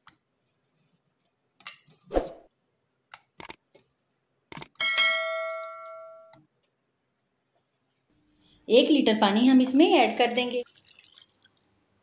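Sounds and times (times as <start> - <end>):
bell ding: 4.8 - 6.3.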